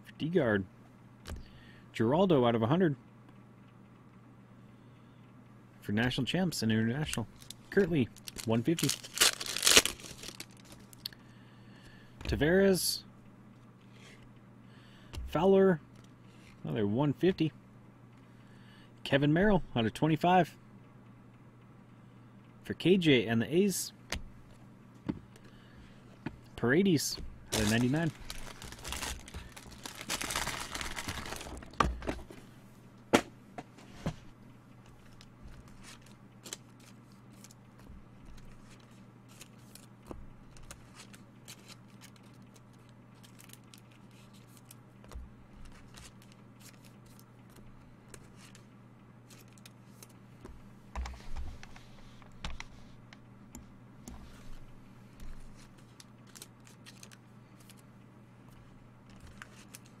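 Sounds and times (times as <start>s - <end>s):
low electrical hum: 0.0s - 60.0s
cards rustling: 7.0s - 11.0s, 27.0s - 32.4s, 34.8s - 44.8s, 45.5s - 50.2s, 55.2s - 57.9s, 58.5s - 60.0s.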